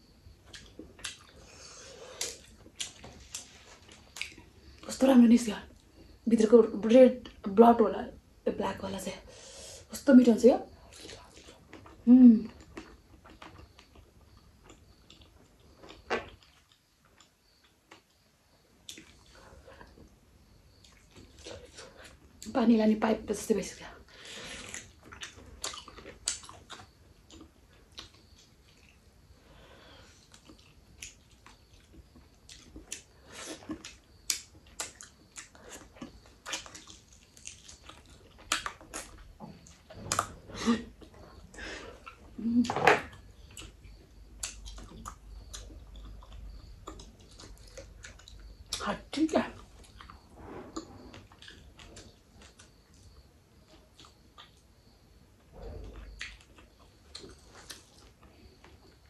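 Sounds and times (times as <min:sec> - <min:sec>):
person chewing: 0:00.4 - 0:04.5, 0:10.9 - 0:18.1, 0:18.8 - 0:20.0, 0:24.5 - 0:29.0, 0:30.1 - 0:40.3, 0:43.1 - 0:48.8, 0:49.6 - 0:52.9, 0:53.8 - 0:54.7, 0:55.9 - 0:59.0.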